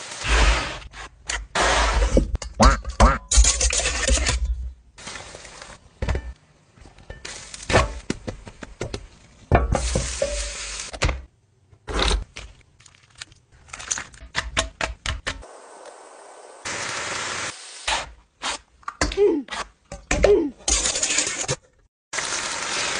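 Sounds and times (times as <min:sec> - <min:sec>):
food sizzling in a frying pan: 0:09.8 - 0:10.9.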